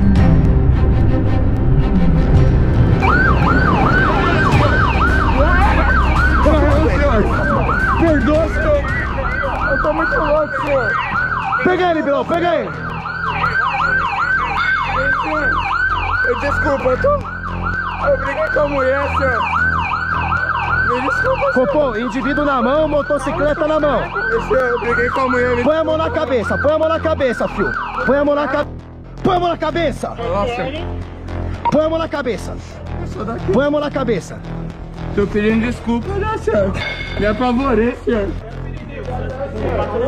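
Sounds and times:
vehicle engine rumble: 0:00.0 - 0:11.6
police siren on fast yelp: 0:03.0 - 0:28.6.

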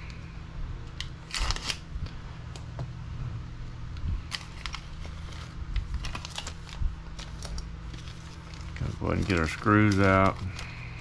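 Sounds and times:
steady low hum: 0:00.0 - 0:11.0
plastic bags crinkling: 0:04.2 - 0:11.0.

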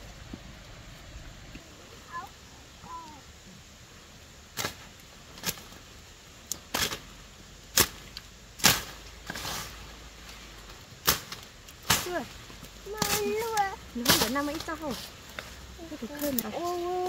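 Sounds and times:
swish through leaves: 0:00.0 - 0:17.0
tool chopping through brush: 0:06.6 - 0:07.1, 0:07.7 - 0:09.8, 0:11.0 - 0:12.3, 0:12.9 - 0:14.7.

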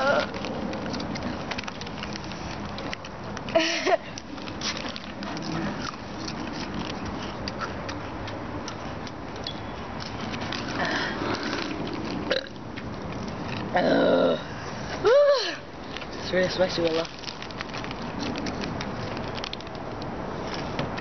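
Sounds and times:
boy's wavering vocal noise: 0:00.0 - 0:00.4, 0:13.7 - 0:15.6
small clicks and rustles: 0:00.0 - 0:13.7, 0:15.8 - 0:21.0.

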